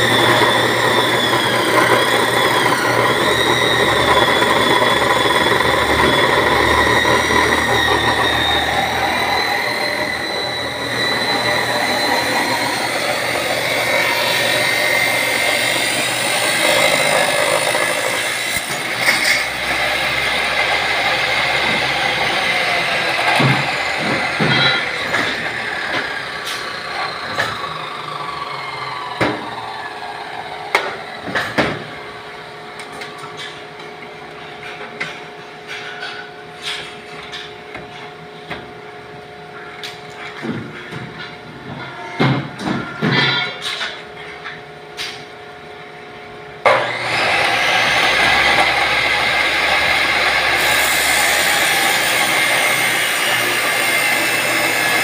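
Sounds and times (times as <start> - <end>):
chop saw winding down: 0.0 - 33.5, 46.6 - 55.0
steel pieces clanking: 16.6 - 19.8, 41.8 - 45.2.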